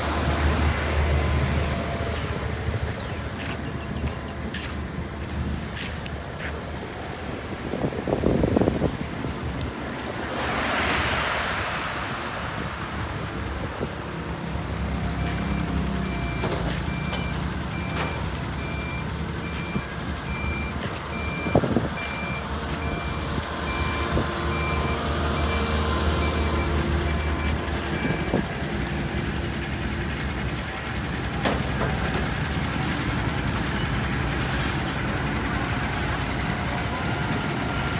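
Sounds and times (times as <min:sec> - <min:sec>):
road rollers running: 0:00.0 - 0:37.9
reversing alarm beeping: 0:15.1 - 0:28.4.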